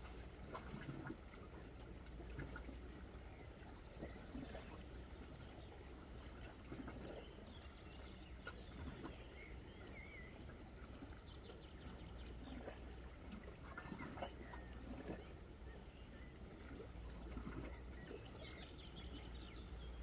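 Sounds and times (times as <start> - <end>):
water lapping on rocks: 0.0 - 20.0
faint bird chirp: 3.2 - 20.0.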